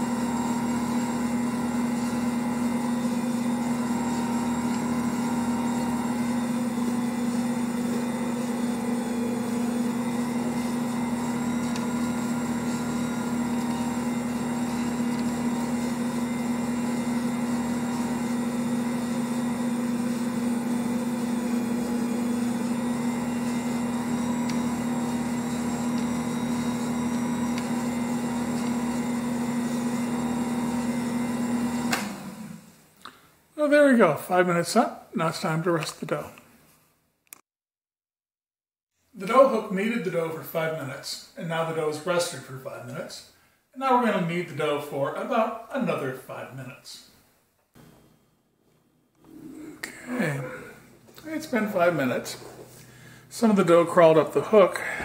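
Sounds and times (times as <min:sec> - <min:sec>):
stand mixer motor hum: 0:00.0 - 0:32.8.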